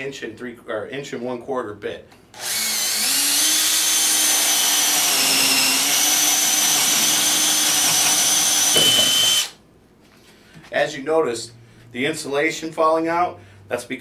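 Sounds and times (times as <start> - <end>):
cordless drill boring into wood: 2.4 - 9.6.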